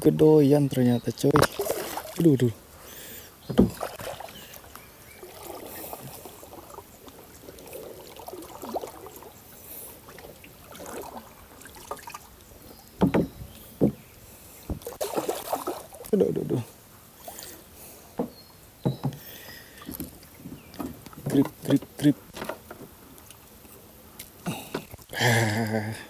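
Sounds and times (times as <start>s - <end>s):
bumps against boat hull: 3.5s - 3.9s, 13.0s - 14.0s, 18.2s - 19.2s
sharp knocks on boat: 3.5s - 4.1s, 13.0s - 14.0s, 18.2s - 19.2s.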